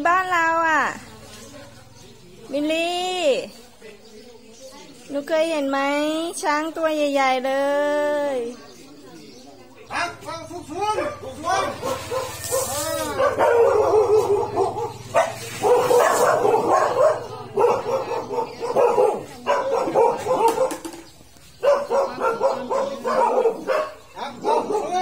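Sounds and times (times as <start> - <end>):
dog barking and yelping: 11.0 - 20.9, 21.6 - 25.0
water spraying from elephant trunk: 12.0 - 13.2.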